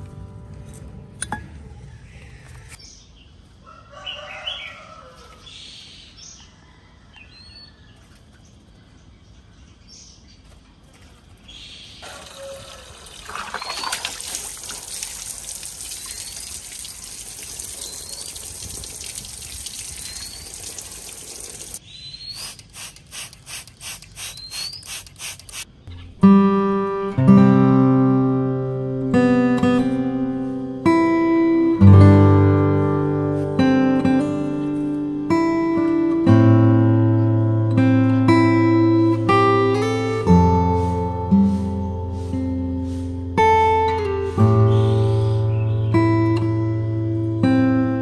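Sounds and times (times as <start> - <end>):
water splashing: 12.0 - 21.8
short rising bird chirp: 19.8 - 22.6, 23.9 - 26.1.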